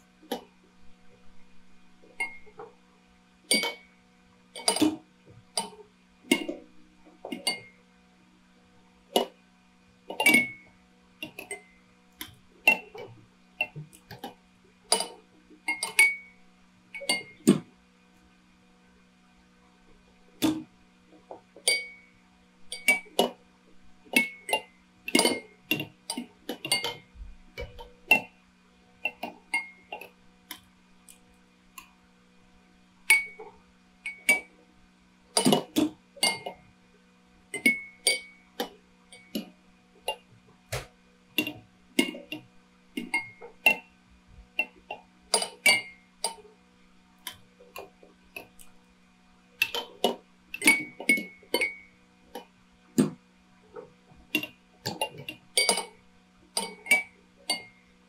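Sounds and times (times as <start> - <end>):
faint steady hum: 0.0 - 58.0.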